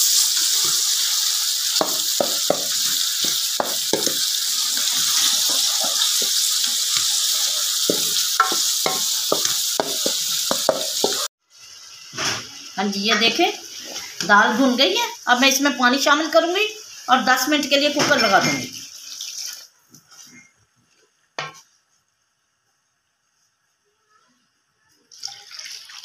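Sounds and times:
chicken sizzling in a pot: 0.0s - 20.5s.

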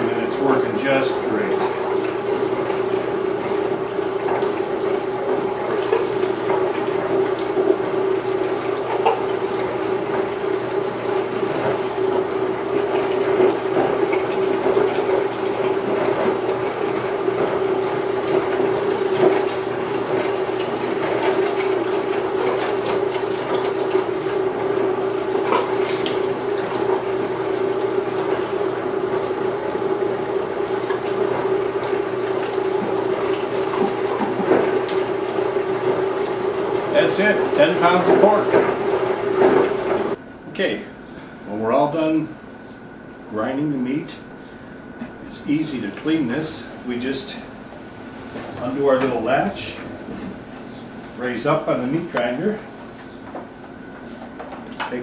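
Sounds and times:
meat grinder motor hum: 0.0s - 55.0s.

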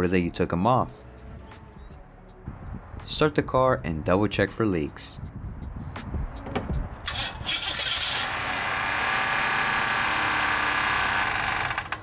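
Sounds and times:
harsh high-pitched engine noise: 7.3s - 11.9s.

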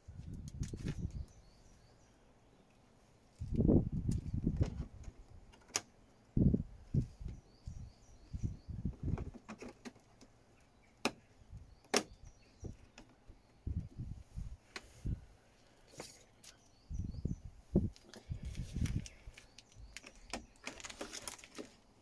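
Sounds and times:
faint bird chirps: 0.8s - 3.3s, 6.0s - 9.4s, 10.5s - 21.2s.

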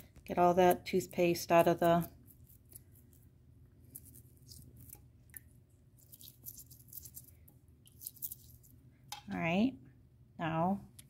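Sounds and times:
toothbrush scrubbing: 6.0s - 8.7s.

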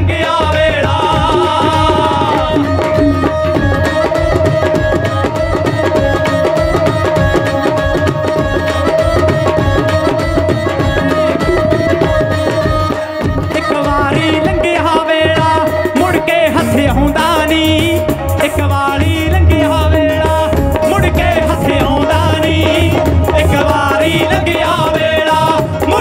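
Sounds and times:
person singing: 0.0s - 26.0s
tabla playing fast rhythm: 0.0s - 26.0s
violin melody: 0.0s - 26.0s
steady held note: 1.7s - 7.3s.

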